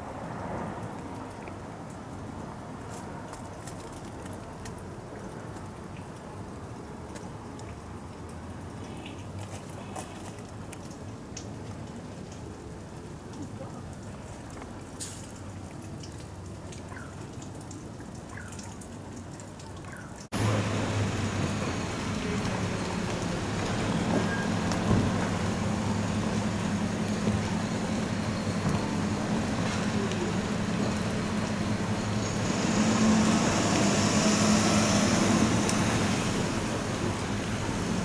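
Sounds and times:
city street traffic: 0:00.0 - 0:17.5, 0:18.1 - 0:38.0
low engine hum: 0:20.3 - 0:38.0.

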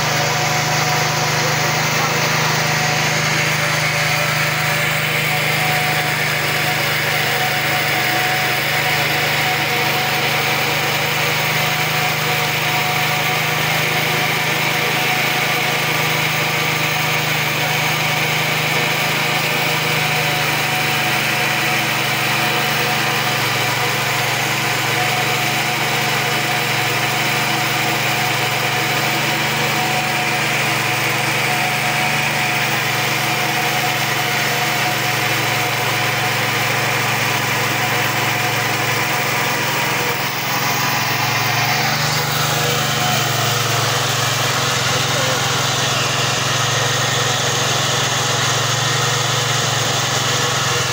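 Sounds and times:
diesel engine running: 0:00.0 - 0:50.9.

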